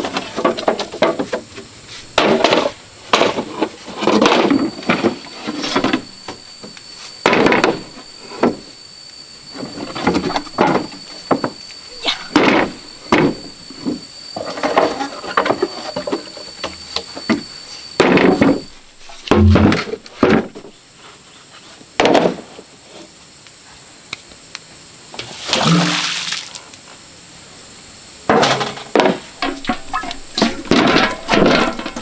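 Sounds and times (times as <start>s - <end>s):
knocks and bangs of hand work: 12.3s - 14.0s, 18.0s - 20.6s.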